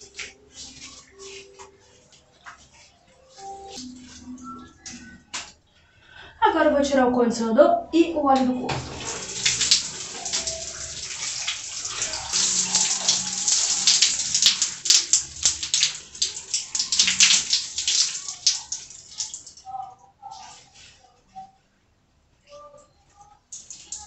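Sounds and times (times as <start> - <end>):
running water splashing: 8.6 - 19.7, 23.5 - 24.0.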